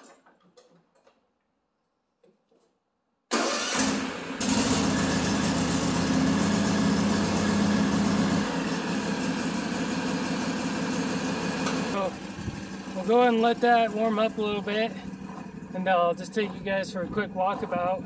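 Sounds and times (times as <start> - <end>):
starter cranking engine: 3.3 - 18.0
mower engine running: 3.4 - 18.0.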